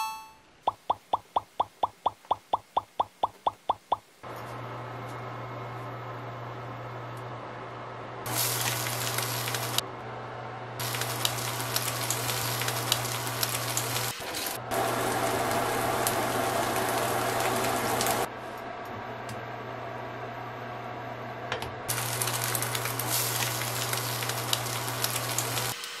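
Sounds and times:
food sizzling in a frying pan: 8.3 - 9.8, 10.8 - 18.3, 21.9 - 26.0
oil crackles: 8.3 - 9.8, 10.8 - 18.3, 21.9 - 26.0.

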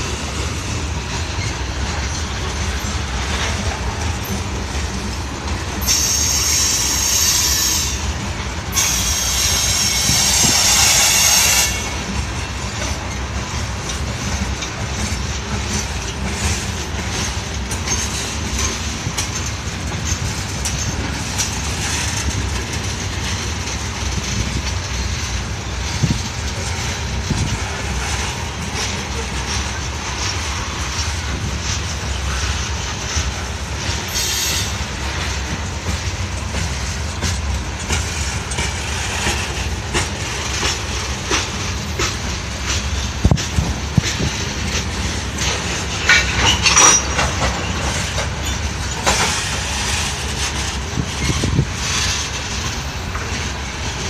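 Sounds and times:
train wheels rumbling on rails: 0.0 - 54.0
wheels clacking over rail joints: 0.0 - 54.0.

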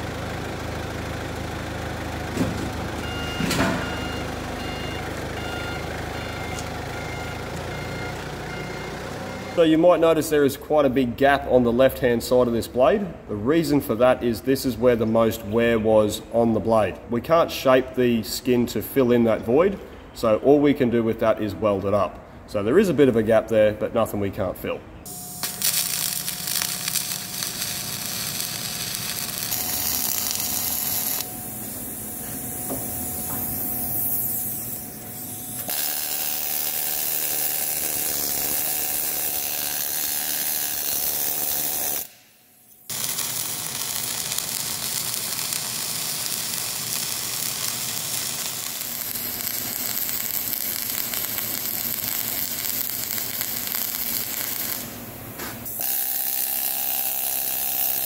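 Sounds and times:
welding crackling sizzle: 25.1 - 58.0.

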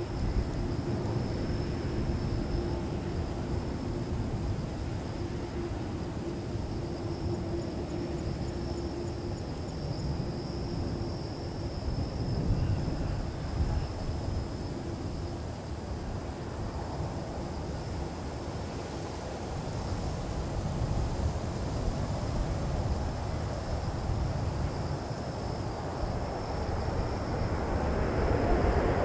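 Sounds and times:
high insect drone: 0.0 - 29.0
distant jet engines rumbling: 20.5 - 29.0.

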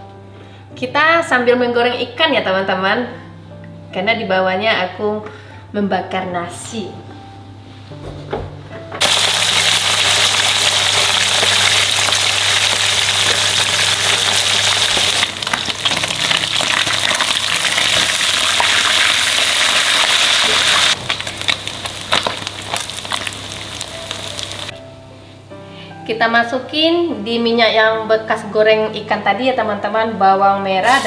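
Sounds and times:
fish sizzling in hot oil: 9.0 - 24.7.

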